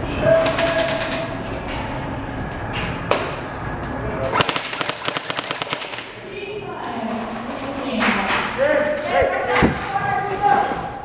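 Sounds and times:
airsoft gun full-auto burst: 4.4 - 6.2.

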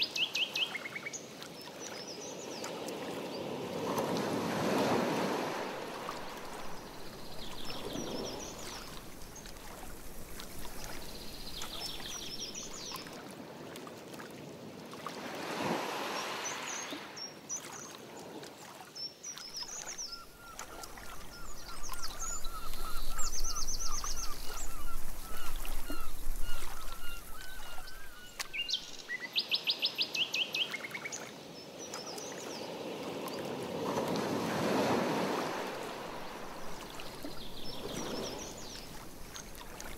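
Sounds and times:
paddle strokes swishing through water: 1.3 - 29.1, 31.9 - 39.9
songbirds chirping: 5.6 - 13.2, 19.0 - 32.8, 35.6 - 39.9.

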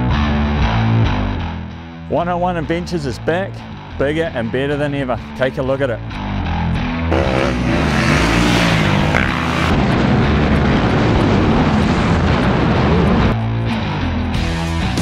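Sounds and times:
music: 0.0 - 15.0
dirt bike engines revving: 7.1 - 13.3.

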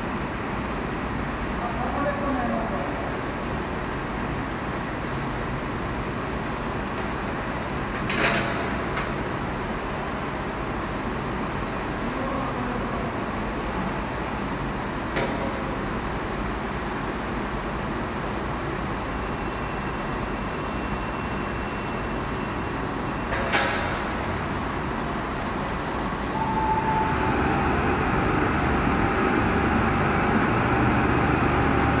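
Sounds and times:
textile mill machinery din: 24.5 - 32.0.

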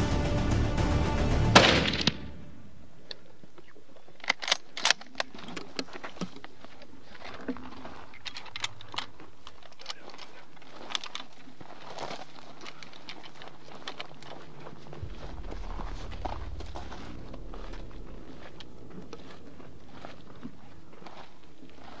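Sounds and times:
gear rattling clicks and knocks: 4.1 - 22.0
footsteps through dry grass: 5.2 - 22.0.

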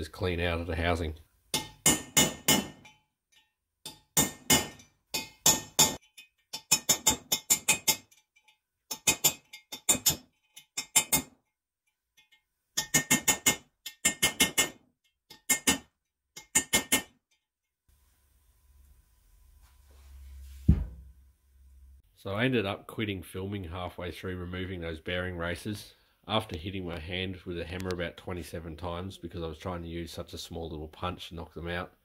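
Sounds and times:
hammer striking steel punch: 1.5 - 3.0, 3.9 - 6.0.

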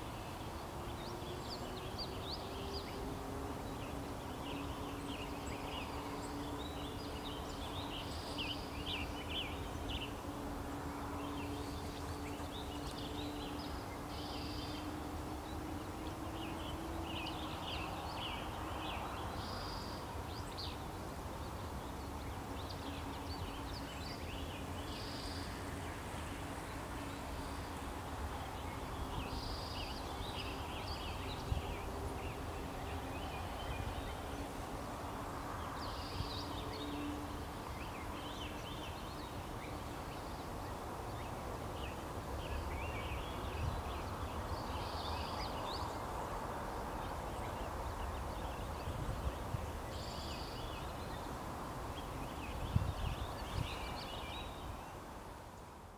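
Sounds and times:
bird chirping: 0.0 - 25.6.

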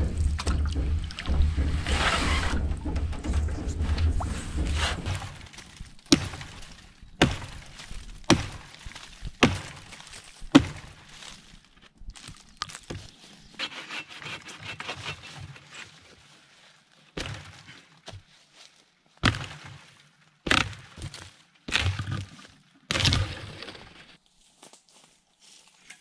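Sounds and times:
knocks on wood: 0.0 - 5.5
scraping and rustling: 0.0 - 11.7
hatchet chopping wood: 4.7 - 11.1, 20.5 - 22.2.

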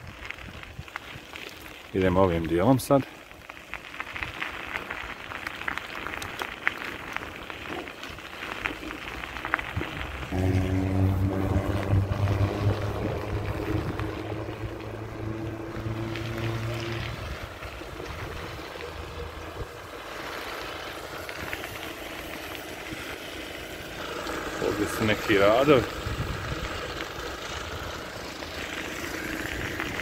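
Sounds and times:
crunching on gravel: 0.0 - 10.9
large engine running: 9.2 - 30.0.

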